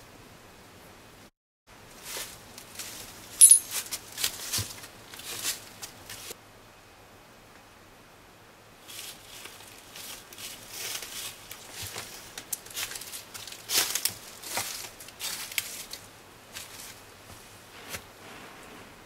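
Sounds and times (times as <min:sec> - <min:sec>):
dry fibres rustling and crackling: 0:01.9 - 0:06.4, 0:08.8 - 0:18.4.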